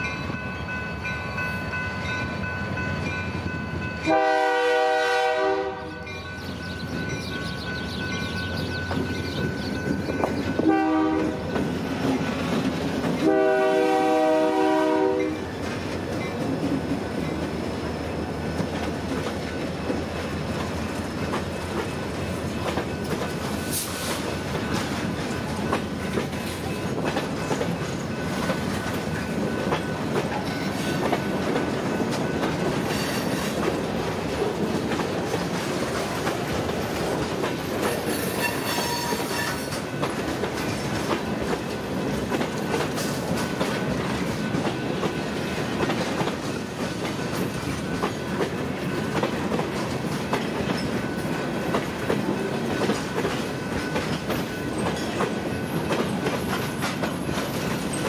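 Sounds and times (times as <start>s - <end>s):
train wheels clicking over rail joints: 6.3s - 58.0s
high wheel squeal: 38.0s - 39.8s.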